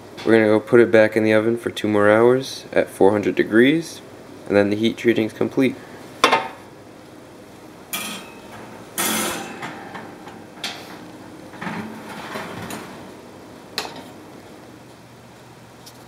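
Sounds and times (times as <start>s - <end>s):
oven rack rattling: 7.9s - 14.2s.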